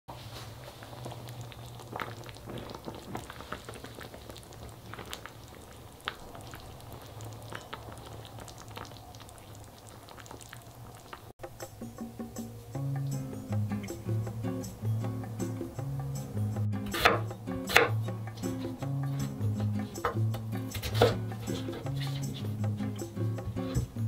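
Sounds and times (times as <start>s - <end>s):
stew bubbling in a pot: 0.1s - 11.4s.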